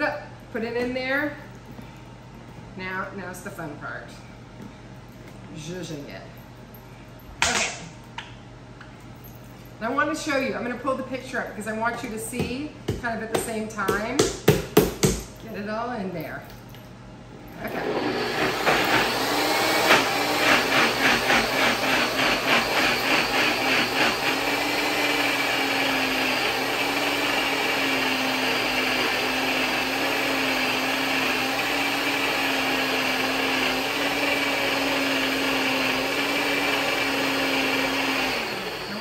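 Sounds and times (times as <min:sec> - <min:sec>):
blender motor pureeing: 0:17.6 - 0:39.0.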